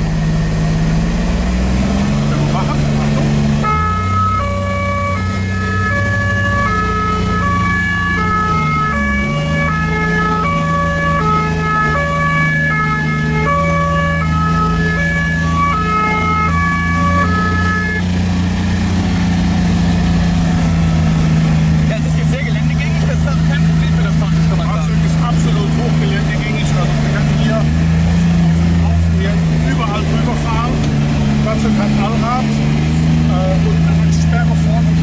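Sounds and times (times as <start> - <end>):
vehicle engine running: 0.0 - 35.0
two-tone emergency siren: 2.1 - 18.2.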